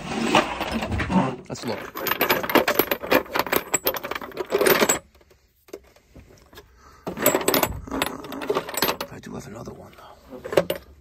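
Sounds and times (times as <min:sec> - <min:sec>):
metal pipe fittings clinking: 0:01.6 - 0:05.8, 0:07.1 - 0:09.2.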